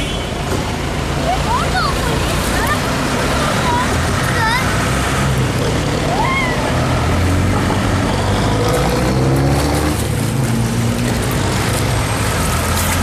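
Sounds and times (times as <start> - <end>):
vehicle engine humming: 0.0 - 13.0
fountain water splashing: 1.2 - 6.7.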